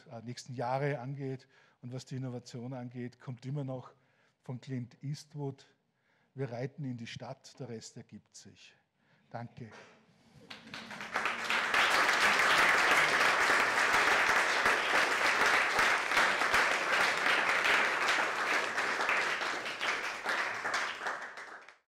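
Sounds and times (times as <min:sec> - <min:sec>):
audience applauding: 0:10.4 - 0:21.9.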